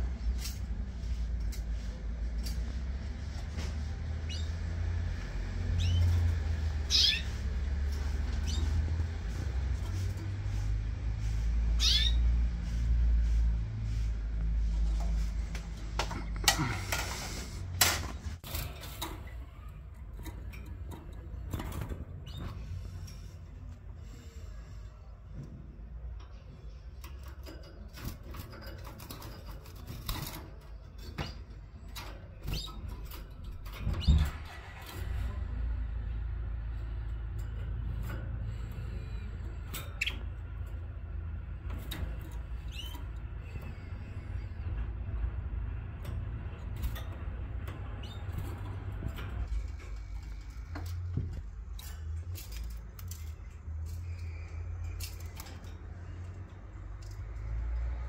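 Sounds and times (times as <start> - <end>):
bird chicks chirping: 5.6 - 9.4, 11.7 - 12.6.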